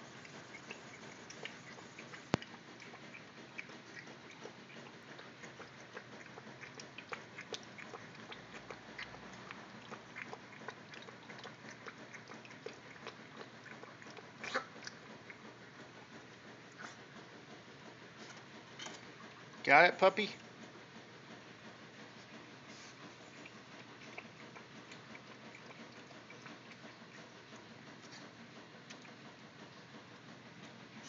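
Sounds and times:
puppy lapping water from metal bowl: 0.0s - 16.9s, 23.0s - 29.2s.

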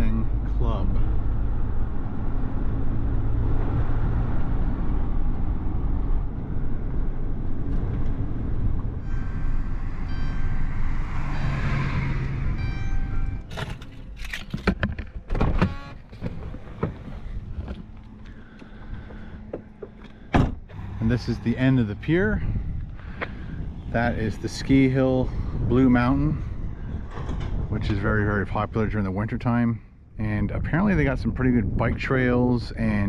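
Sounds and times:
engine and road rumble: 0.0s - 33.0s
car door and controls clicking: 12.6s - 17.8s.

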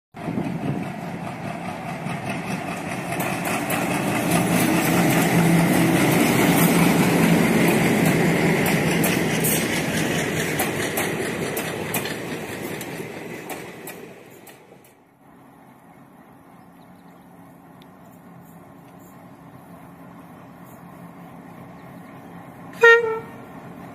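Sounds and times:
diesel locomotive engine drone: 0.1s - 23.9s
train wheels clacking over rail joints: 0.2s - 15.0s.

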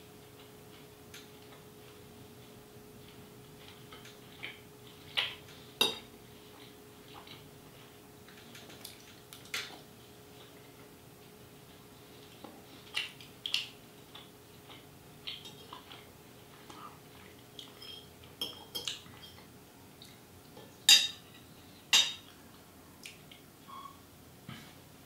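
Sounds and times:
cutlery clinking on a plate: 17.6s - 19.5s, 20.9s - 21.2s.

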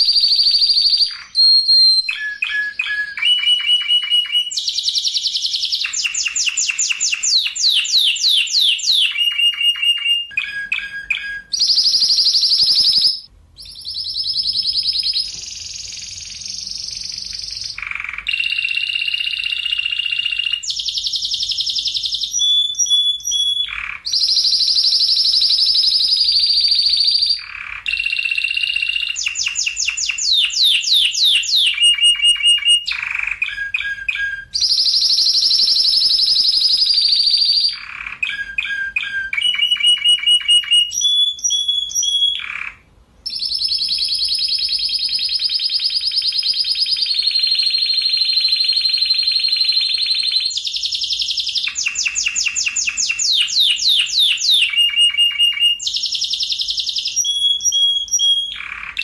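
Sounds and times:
canary singing trills: 0.0s - 59.0s.

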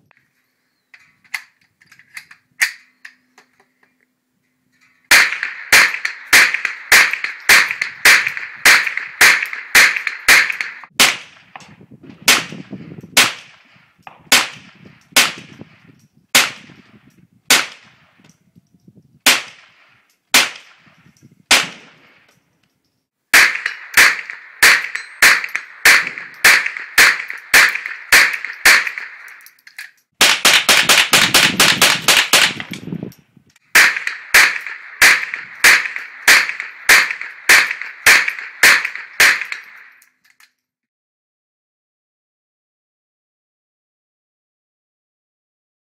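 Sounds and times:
rifle shots with echo: 5.1s - 18.2s, 19.3s - 22.3s, 23.3s - 29.4s, 30.2s - 32.8s, 33.7s - 39.9s.

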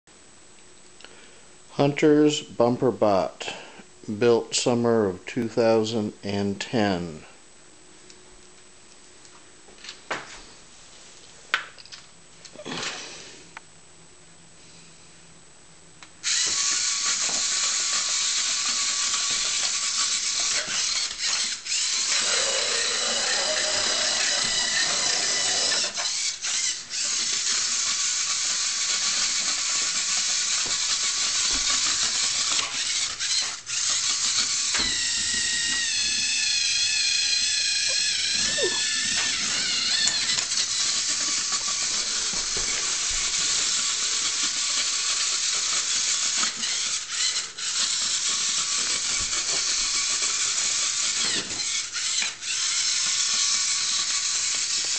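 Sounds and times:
servo motors whirring: 16.2s - 54.9s.

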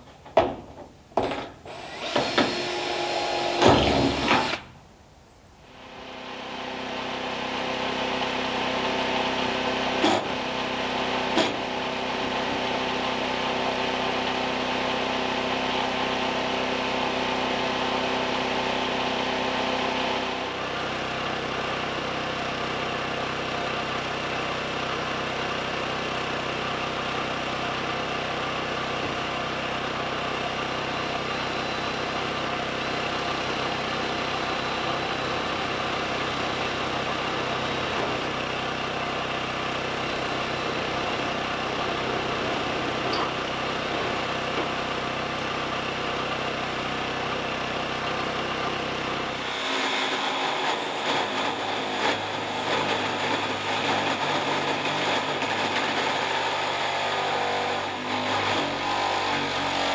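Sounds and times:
cordless drill boring into metal: 1.6s - 4.7s
jigsaw cutting sheet metal: 1.7s - 4.7s, 49.3s - 59.9s.

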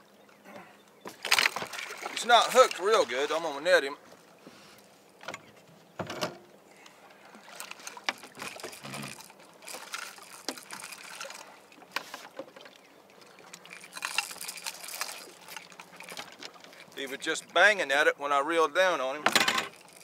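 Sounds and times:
fishing gear clattering against boat: 0.4s - 20.0s
water splashing: 1.1s - 3.8s, 7.1s - 17.9s.

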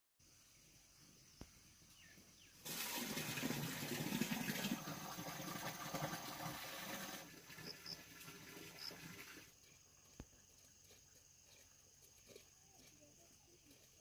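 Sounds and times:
water gushing: 2.6s - 9.5s.

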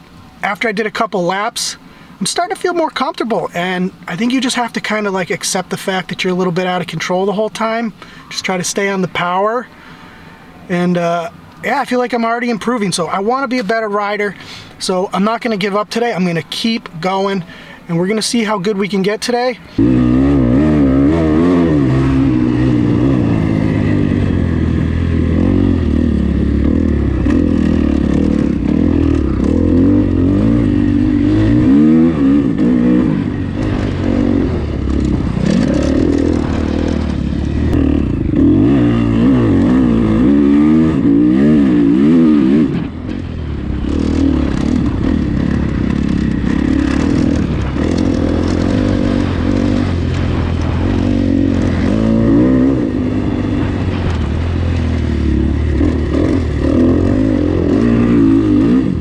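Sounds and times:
motocross bike engine revving: 19.7s - 59.0s.

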